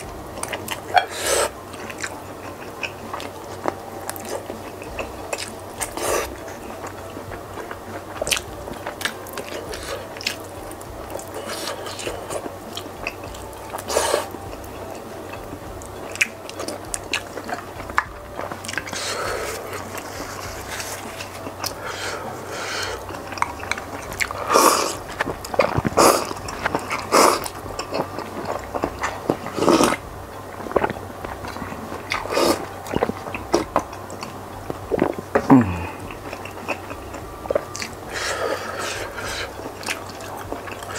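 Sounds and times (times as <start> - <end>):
wet mouth sounds: 0.0 - 40.9.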